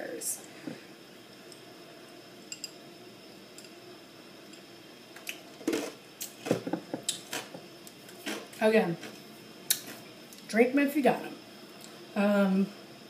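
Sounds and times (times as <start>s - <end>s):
items knocking on kitchen counter: 6.5s - 7.1s.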